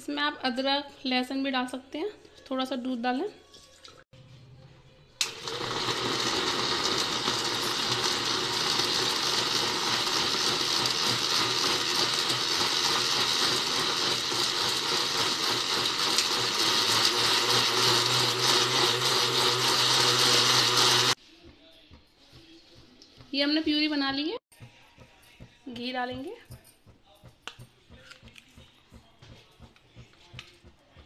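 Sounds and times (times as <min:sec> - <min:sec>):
mixer grinder running: 0:05.2 - 0:21.2.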